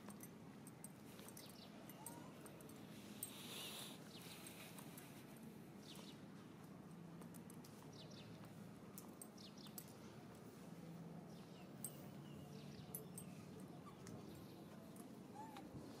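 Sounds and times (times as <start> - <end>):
faint high chirps: 1.3 - 2.6.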